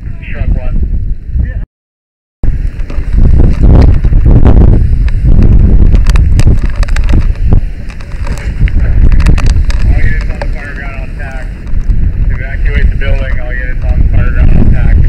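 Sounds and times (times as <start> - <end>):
sharp cracks and knocks: 5.9 - 10.5.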